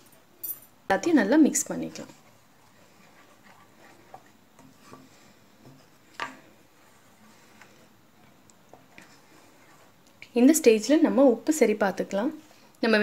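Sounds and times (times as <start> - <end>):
wooden spatula scraping a pan: 1.8 - 6.0.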